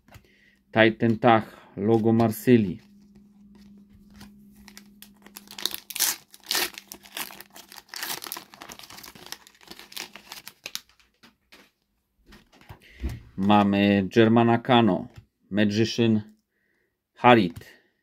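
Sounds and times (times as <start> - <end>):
cards rustling: 1.9 - 12.8
wrapper crinkling and ripping: 2.8 - 11.6.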